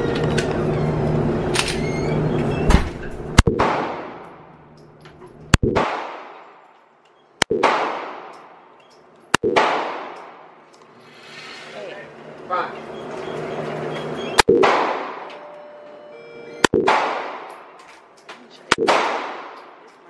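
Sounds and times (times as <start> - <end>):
handgun shots echoing indoors: 16.8 - 18.0, 18.7 - 19.8.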